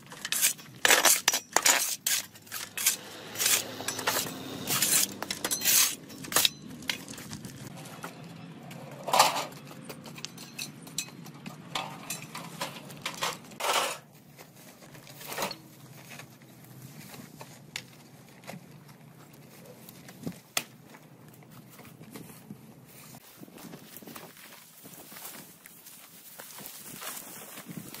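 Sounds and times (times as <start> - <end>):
hand tools clinking and scraping: 0.0 - 18.4.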